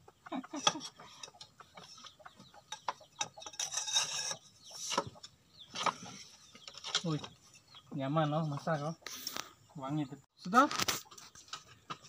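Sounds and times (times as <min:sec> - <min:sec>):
metal scraping and rasping: 0:00.6 - 0:08.9.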